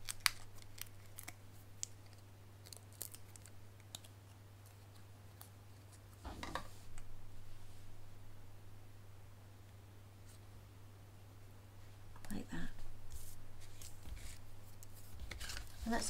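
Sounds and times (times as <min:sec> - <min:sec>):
paper rustle and tap: 0:13.6 - 0:16.0.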